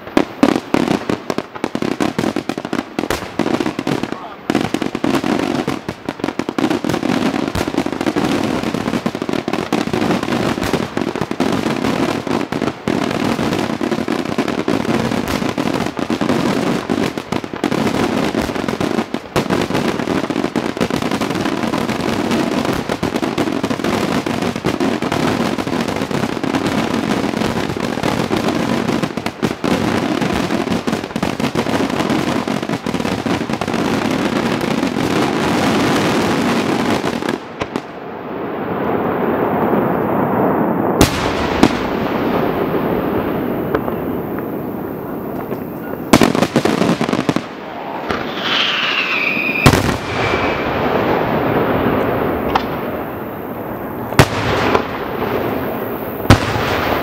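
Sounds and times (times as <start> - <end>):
firework shells bursting: 41.0 - 57.0.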